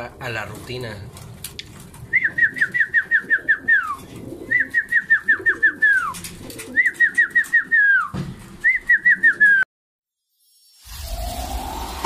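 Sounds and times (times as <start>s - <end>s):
pigeons cooing: 1.2s - 8.1s.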